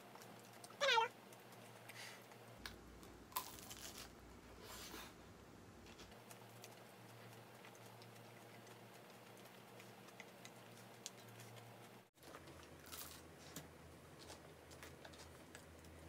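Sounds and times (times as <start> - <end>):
soft chewing clicks: 0.0 - 2.8, 5.9 - 13.0.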